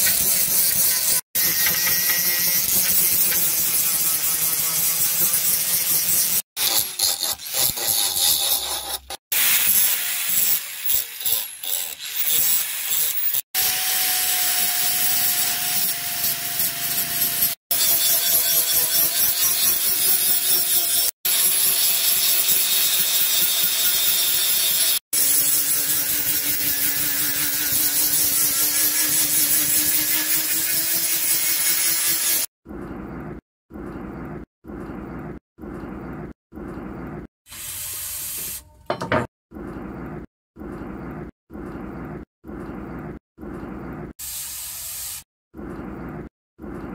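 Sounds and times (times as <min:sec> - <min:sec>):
angle grinder grinding steel: 0:00.0 - 0:32.5.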